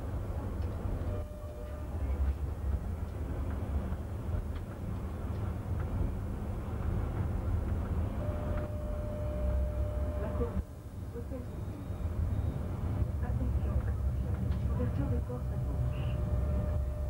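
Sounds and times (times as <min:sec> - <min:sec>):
tram wheels rumbling: 0:00.0 - 0:17.0
faint steady whine: 0:08.1 - 0:13.8.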